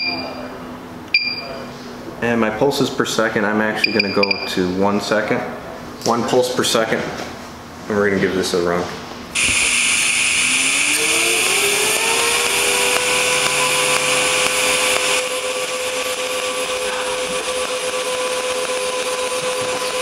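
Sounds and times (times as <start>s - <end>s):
welding arc hissing and whining: 9.4s - 20.0s.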